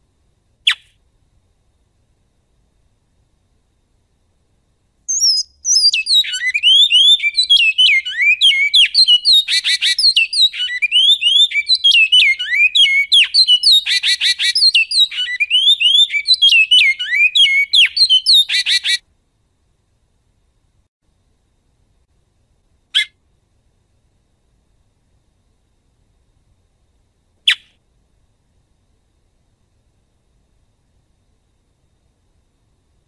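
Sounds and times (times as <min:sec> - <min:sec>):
finch singing whistled notes: 0:05.1 - 0:19.0.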